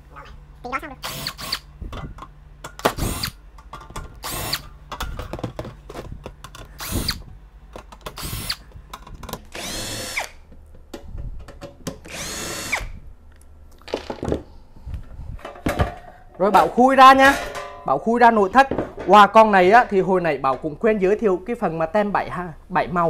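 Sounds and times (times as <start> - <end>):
cordless drill spinning: 1.0 - 1.7, 3.0 - 3.4, 4.2 - 4.6, 6.8 - 7.3, 8.1 - 8.6, 9.5 - 10.4, 12.1 - 13.0.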